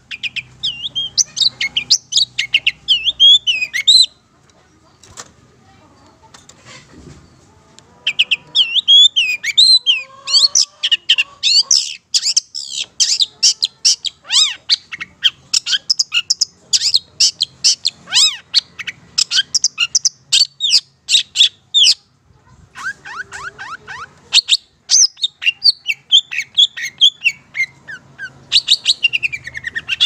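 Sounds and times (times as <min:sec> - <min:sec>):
bird singing chirps and whistles: 0:24.4 - 0:30.0.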